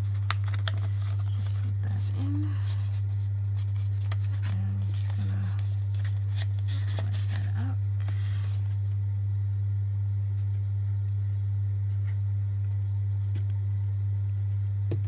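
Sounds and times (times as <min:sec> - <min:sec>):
paper banknotes rustling: 0:00.0 - 0:09.0
steady low hum: 0:00.0 - 0:15.0.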